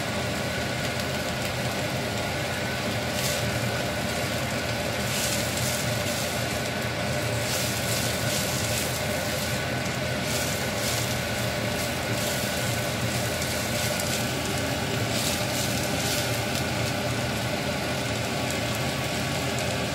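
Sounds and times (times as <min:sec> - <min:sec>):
potatoes and onions sizzling in pan: 0:00.0 - 0:19.9
steady mechanical hum: 0:00.0 - 0:19.9
spatula scraping pan: 0:03.1 - 0:17.0.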